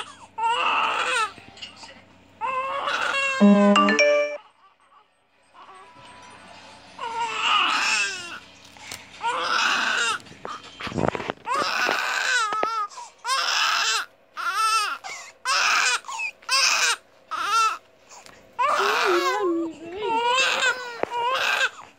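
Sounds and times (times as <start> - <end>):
newborn baby crying: 0.0 - 1.3, 2.4 - 3.4, 9.2 - 10.2, 11.5 - 17.8, 18.6 - 21.8.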